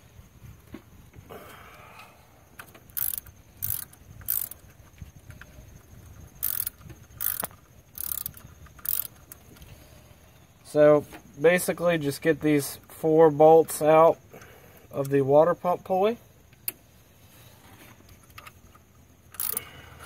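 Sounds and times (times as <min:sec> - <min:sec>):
hand ratchet clicking: 0:02.6 - 0:09.7, 0:19.2 - 0:19.7.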